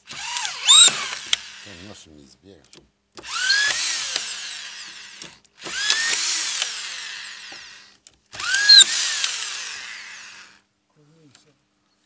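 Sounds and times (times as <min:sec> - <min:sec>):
electric screwdriver motor whining: 0:00.0 - 0:01.8, 0:03.2 - 0:10.6.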